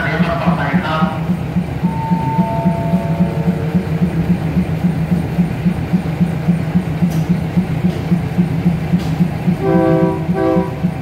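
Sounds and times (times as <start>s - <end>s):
diesel engine idling: 0.0s - 11.0s
descending station chime: 1.8s - 4.6s.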